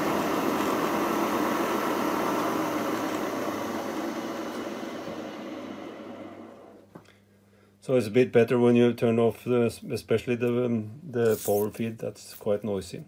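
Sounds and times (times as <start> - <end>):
milling machine running: 0.0 - 6.8.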